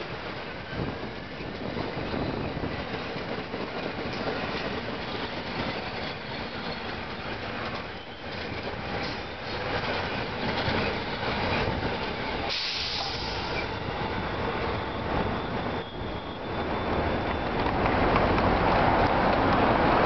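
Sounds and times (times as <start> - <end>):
train wheels on rails: 0.0 - 20.0
train air hiss: 12.3 - 13.8.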